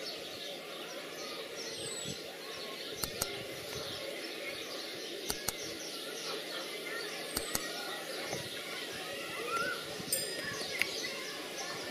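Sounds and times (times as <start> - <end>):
sharp clicks: 3.0 - 3.4, 5.3 - 5.7, 7.3 - 7.8.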